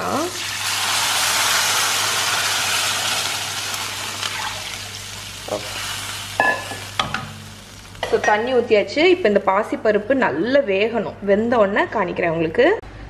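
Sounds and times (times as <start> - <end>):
sizzling in hot pan: 0.0 - 8.8
spoon knocking against pan: 6.4 - 7.4.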